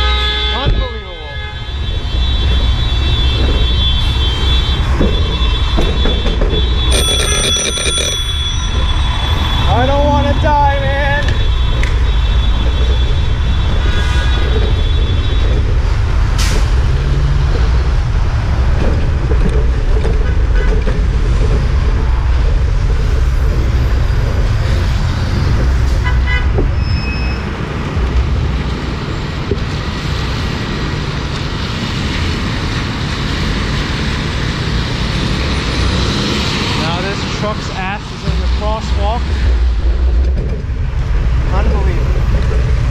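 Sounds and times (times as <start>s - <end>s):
car horn: 0.0s - 10.3s, 26.0s - 26.5s
traffic rumble: 0.0s - 42.9s.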